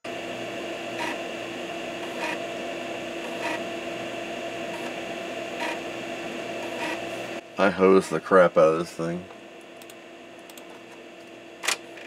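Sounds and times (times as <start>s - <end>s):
steady hum: 0.0s - 12.0s
floppy drive grinding: 0.1s - 12.0s.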